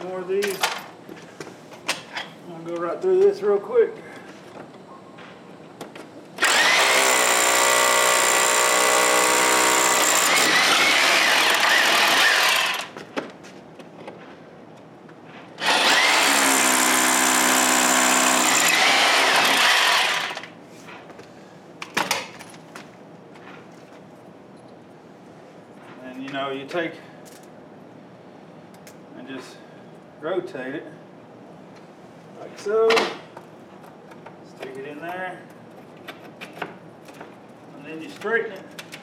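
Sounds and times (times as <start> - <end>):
electric drill drilling into wall: 6.4 - 13.0, 15.6 - 20.5.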